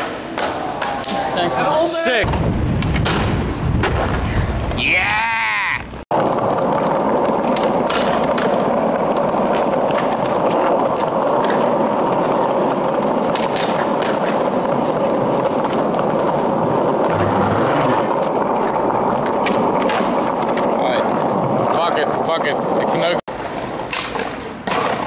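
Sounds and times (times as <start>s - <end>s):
skateboard wheels rolling on pavement: 0.0s - 25.0s.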